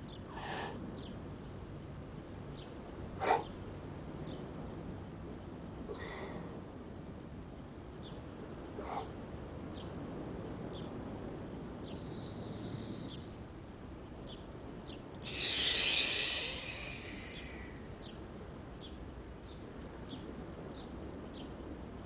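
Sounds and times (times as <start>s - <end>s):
low steady outdoor noise: 0.0s - 22.0s
bird chirping: 14.2s - 18.2s.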